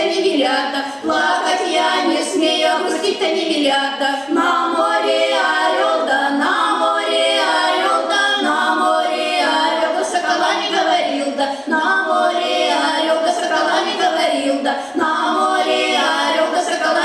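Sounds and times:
women singing a cappella in harmony: 0:00.0 - 0:17.0.

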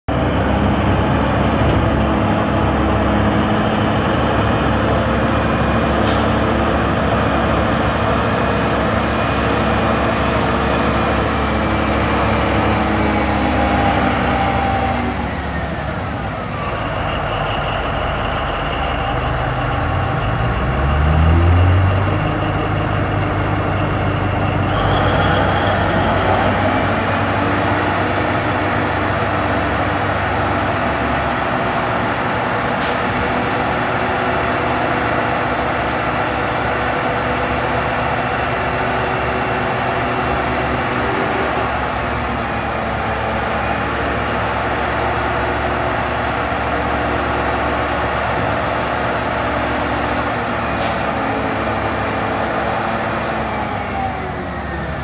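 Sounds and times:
diesel truck engine revving: 0:00.1 - 0:55.0
hydraulics raising dump body: 0:00.1 - 0:55.0.

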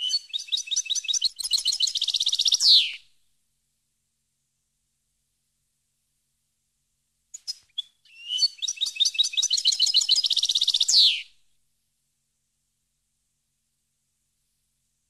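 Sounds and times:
goldfinch song: 0:00.0 - 0:03.0, 0:07.3 - 0:11.3.

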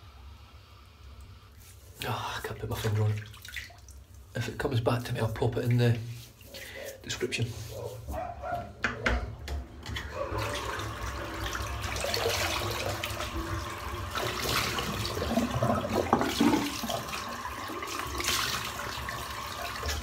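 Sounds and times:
water splashing: 0:02.5 - 0:04.3, 0:10.2 - 0:20.0
tap water running into sink: 0:08.8 - 0:20.0.

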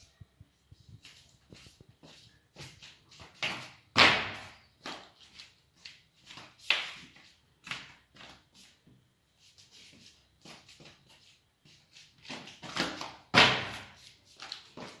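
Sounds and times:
bare feet on tiled floor: 0:00.0 - 0:15.0.

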